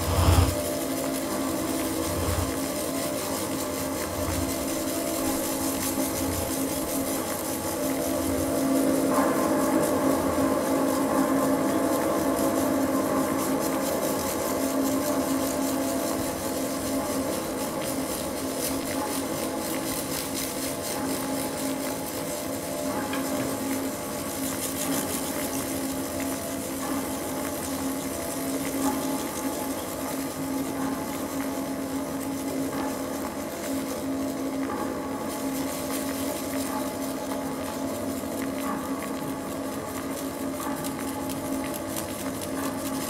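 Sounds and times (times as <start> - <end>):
faint high rustle: 0.0 - 9.0
reed chord drone: 1.8 - 2.7.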